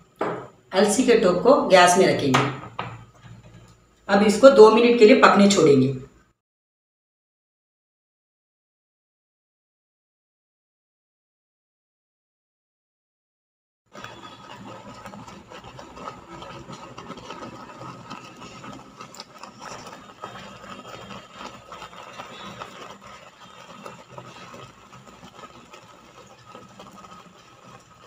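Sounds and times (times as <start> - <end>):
water boiling in a pot: 0.0 - 6.0, 13.9 - 28.0.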